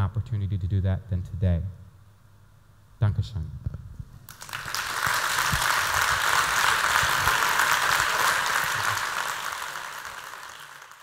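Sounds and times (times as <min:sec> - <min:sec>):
audience applauding: 0:04.3 - 0:11.0.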